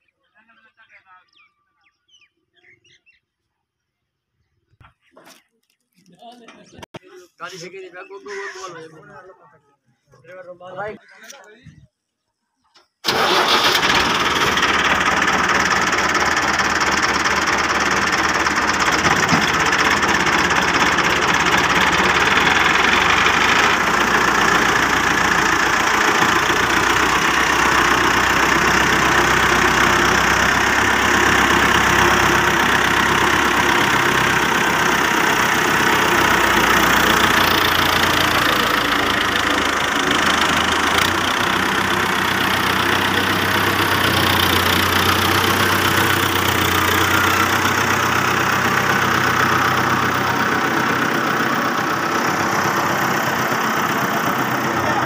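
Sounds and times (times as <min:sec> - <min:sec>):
tractor diesel engine running: 0:13.0 - 0:55.0.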